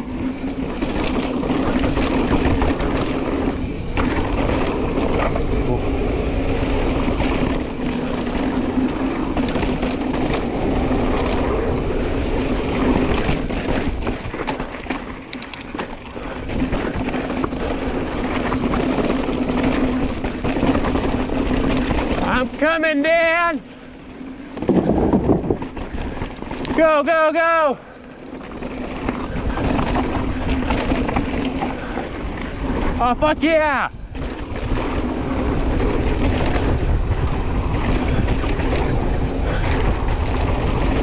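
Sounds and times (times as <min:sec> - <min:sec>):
bike chain and frame rattle: 0:00.0 - 0:41.0
bike tyre noise on dirt: 0:00.0 - 0:41.0
wind on microphone: 0:24.6 - 0:26.7, 0:28.4 - 0:41.0.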